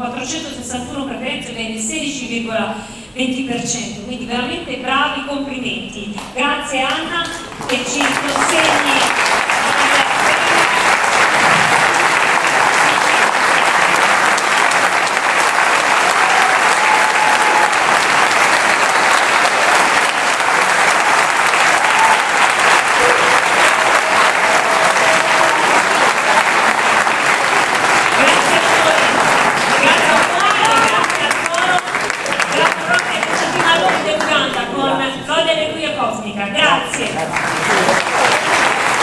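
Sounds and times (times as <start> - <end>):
crowd applauding: 7.4 - 34.7, 37.0 - 39.0.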